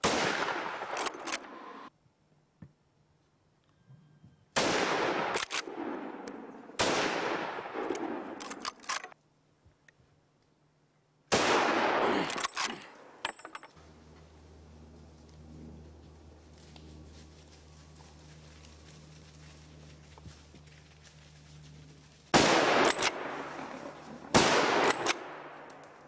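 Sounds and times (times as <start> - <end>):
gunshots echoing: 0.0 - 1.9, 4.6 - 8.9, 11.3 - 13.3, 22.3 - 26.0
faint sharp cracks: 22.4 - 26.0.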